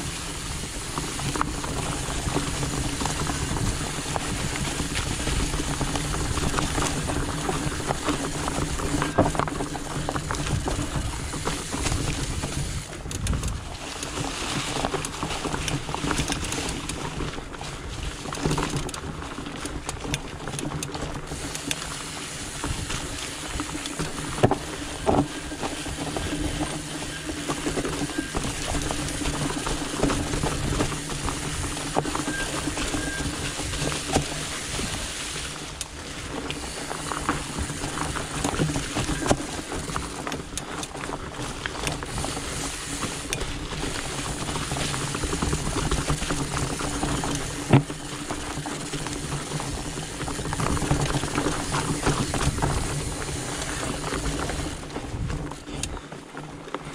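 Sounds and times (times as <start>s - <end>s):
bike knocks and rattles: 0.0s - 56.9s
bike tyres rolling: 0.0s - 56.9s.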